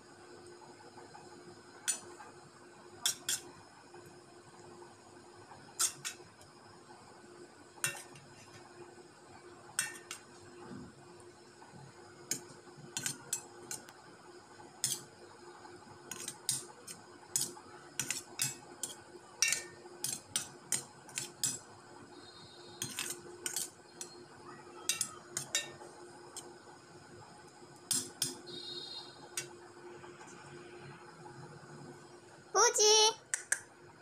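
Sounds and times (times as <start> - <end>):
faint steady hum: 0.0 - 34.0
metal spoon clinking on steel plate: 5.8 - 6.2, 7.8 - 8.3, 9.8 - 10.2, 13.0 - 13.8, 14.8 - 15.1, 16.1 - 16.7, 17.3 - 21.6, 22.8 - 24.2, 24.9 - 25.8, 27.9 - 28.4.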